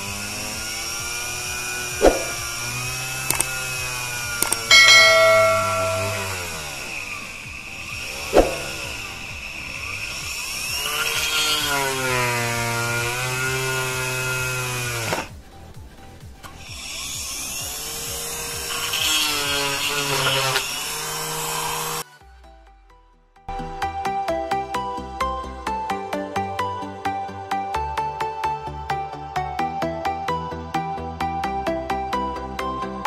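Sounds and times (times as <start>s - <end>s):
drill whining into wood: 0.0s - 15.3s, 16.4s - 22.0s.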